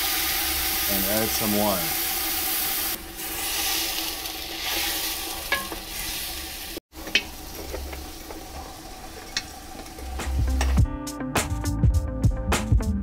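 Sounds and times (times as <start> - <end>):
stew sizzling in a pot: 0.0 - 10.8.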